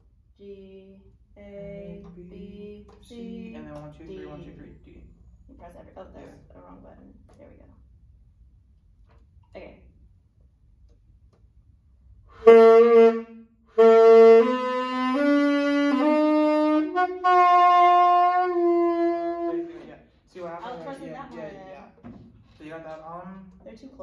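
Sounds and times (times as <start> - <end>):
saxophone playing held notes: 12.3 - 19.9.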